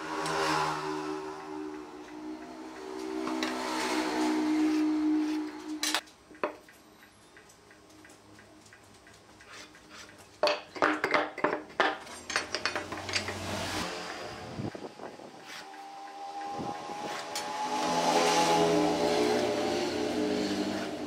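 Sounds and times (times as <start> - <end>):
wooden and steel tools on wood: 0.0 - 14.2, 14.8 - 21.0
sharp knocks and clinks: 9.7 - 13.5.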